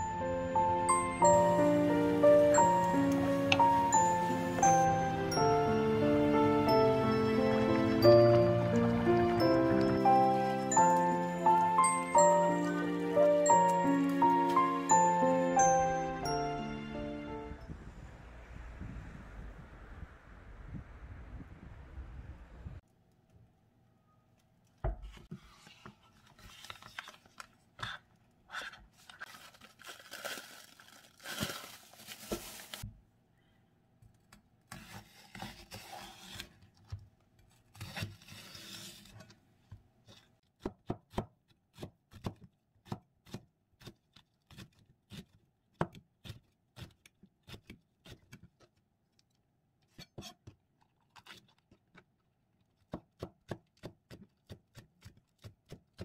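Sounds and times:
ingredients rustling and scraping: 25.0s - 32.9s
knife chopping on plastic board: 40.6s - 48.7s, 52.8s - 56.0s.

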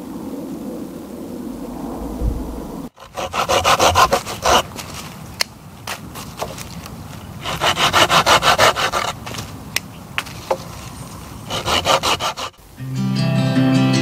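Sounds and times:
hand saw cutting wood: 3.0s - 4.9s, 7.4s - 9.4s, 11.5s - 12.6s.

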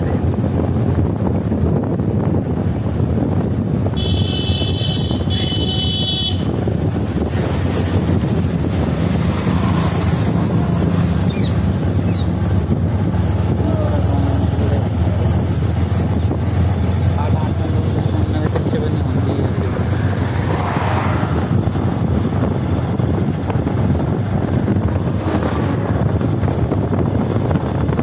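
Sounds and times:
wind noise on microphone: 0.0s - 28.0s
horn honking: 3.9s - 6.7s
motorcycle engine running: 4.0s - 19.8s.

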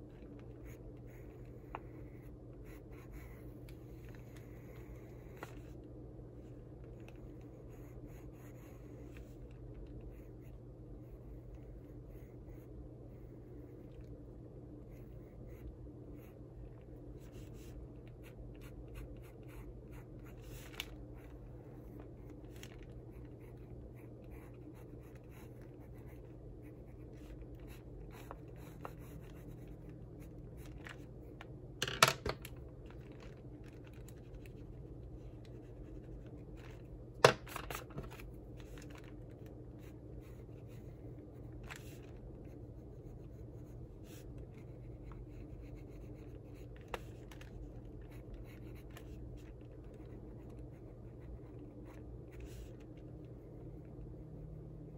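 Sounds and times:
steady low hum: 0.0s - 54.9s
pencil scratching on paper: 0.5s - 5.4s, 7.0s - 9.4s, 17.2s - 22.4s, 23.1s - 30.7s, 48.1s - 52.7s.

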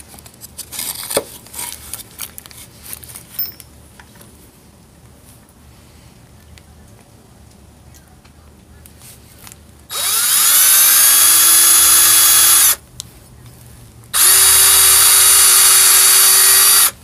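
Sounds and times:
cordless drill boring through leather: 9.9s - 12.8s, 14.2s - 17.0s.

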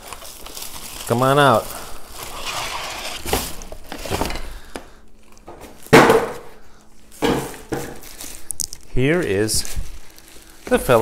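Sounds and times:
plastic wrapping rustling: 0.0s - 11.0s
cardboard scraping: 2.1s - 4.4s.

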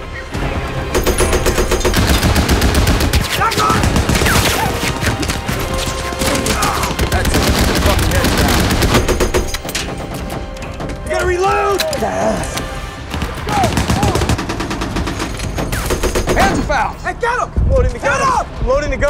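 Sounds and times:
machine guns firing bursts: 1.0s - 9.6s, 13.6s - 16.5s.

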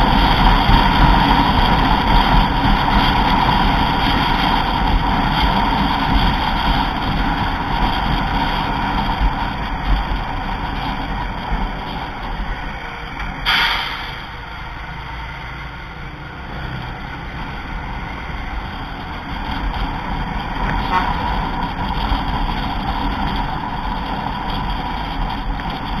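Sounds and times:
coach engine and road noise: 0.0s - 26.0s
brief sharp loud sound: 13.4s - 14.4s.

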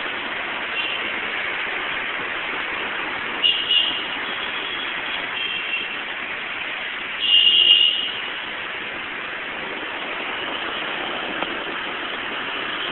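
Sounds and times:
rain and tyres on wet road: 0.0s - 12.9s.

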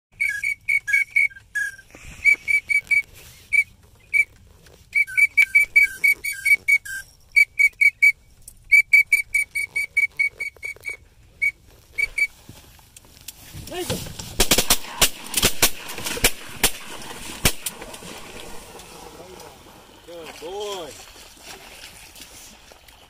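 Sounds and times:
duck whistle call peeps: 0.2s - 4.3s, 4.9s - 12.3s.

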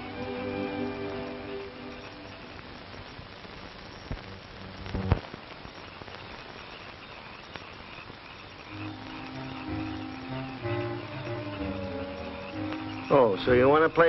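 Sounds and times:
soft music with held notes: 0.0s - 2.7s, 8.7s - 14.0s
film soundtrack hiss and crackle: 0.0s - 14.0s
sharp clicks and pop: 2.5s - 13.2s.

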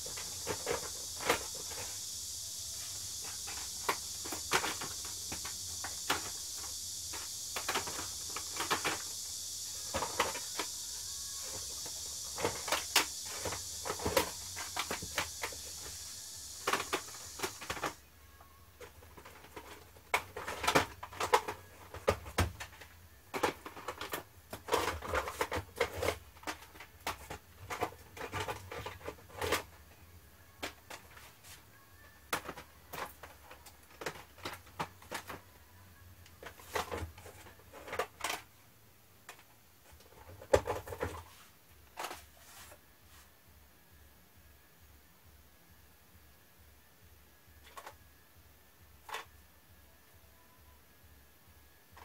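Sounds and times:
plastic cases clattering: 0.0s - 2.1s, 2.7s - 18.0s, 18.8s - 29.8s, 32.3s - 35.5s, 36.2s - 38.5s, 39.9s - 41.3s.

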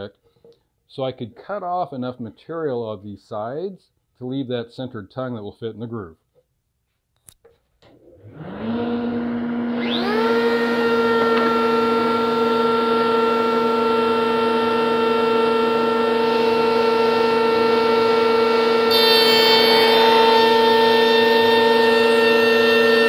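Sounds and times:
router bit cutting wood: 8.2s - 23.0s
router motor whine: 8.2s - 23.0s.

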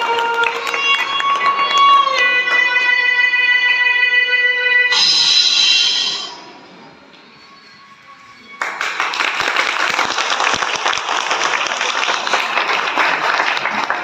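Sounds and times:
audience applauding: 0.0s - 2.9s, 8.6s - 14.0s.

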